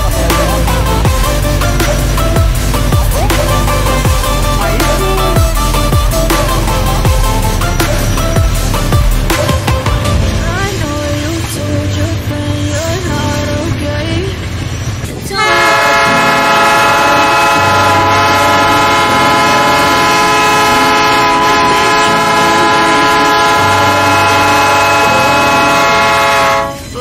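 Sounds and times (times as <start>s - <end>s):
locomotive air horn: 15.4s - 27.0s.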